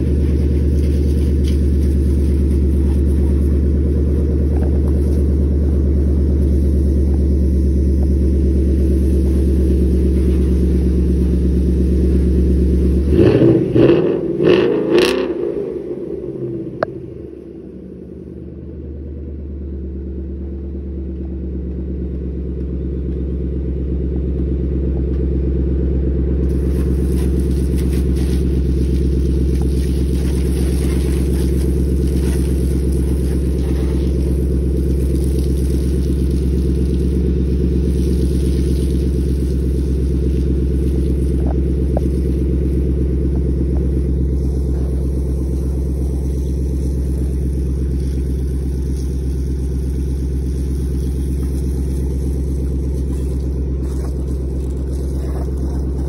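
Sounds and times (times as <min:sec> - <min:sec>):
low droning hum: 0:00.0 - 0:56.0.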